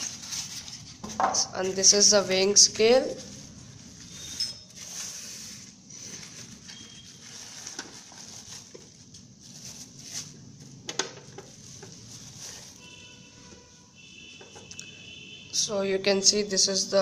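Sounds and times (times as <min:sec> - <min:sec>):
plastic bag crinkling: 0:04.8 - 0:10.8.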